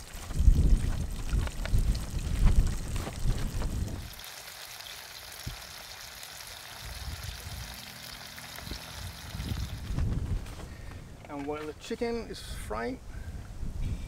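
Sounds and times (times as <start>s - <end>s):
wind rumbling on microphone: 0.0s - 4.2s, 6.8s - 7.9s, 8.5s - 11.3s, 12.4s - 14.0s
meat sizzling in oil: 3.9s - 9.8s.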